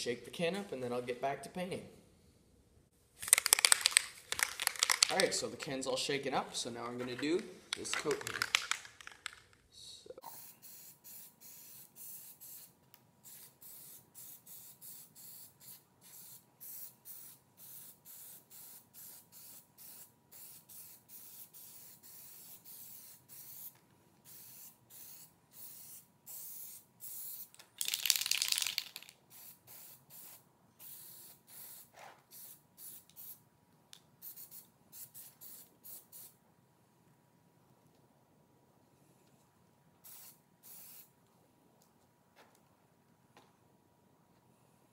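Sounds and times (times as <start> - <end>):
aerosol can spraying: 10.2 - 33.4, 34.2 - 36.3, 40.0 - 41.1.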